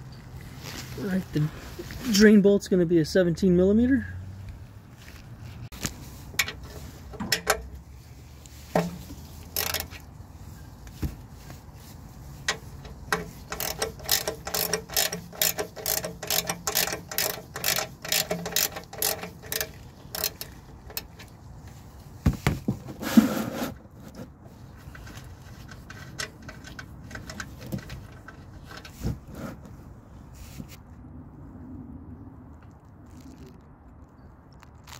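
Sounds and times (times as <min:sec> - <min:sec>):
ratchet wrench clicking: 0:09.4 - 0:10.0, 0:12.5 - 0:21.1
knock and rustle: 0:22.2 - 0:23.2.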